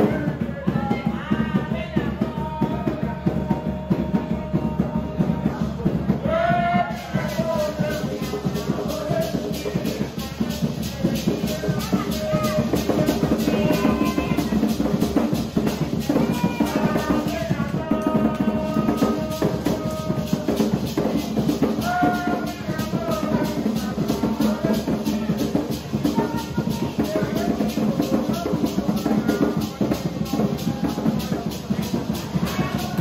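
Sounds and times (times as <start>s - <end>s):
hand drums beating: 0.0s - 33.0s
maracas shaking: 0.0s - 33.0s
voices singing: 0.0s - 33.0s.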